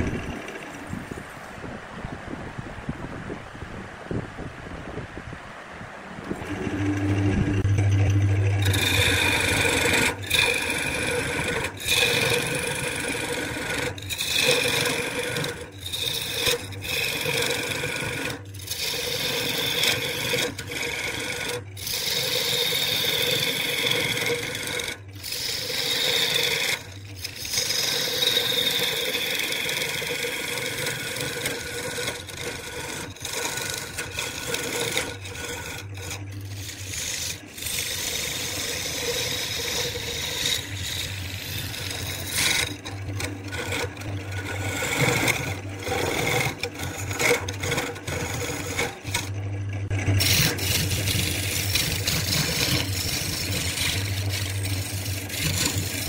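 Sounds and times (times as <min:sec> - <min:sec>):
wood lathe tool scraping: 0:00.0 - 0:01.2, 0:06.3 - 0:56.0.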